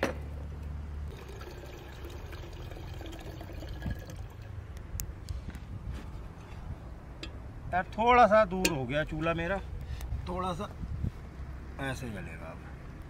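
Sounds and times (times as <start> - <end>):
water trickling into kettle: 1.1 - 4.6.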